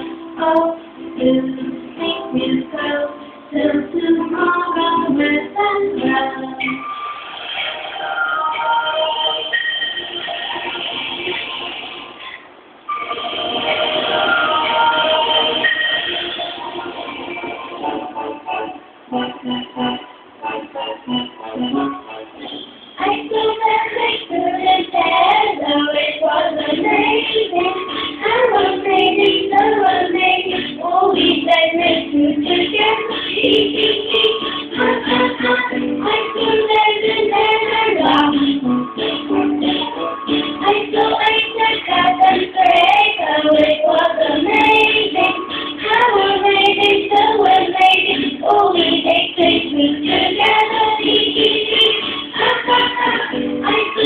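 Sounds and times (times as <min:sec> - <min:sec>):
backing music: 0:00.0 - 0:54.0
child singing: 0:23.0 - 0:38.5, 0:40.6 - 0:54.0.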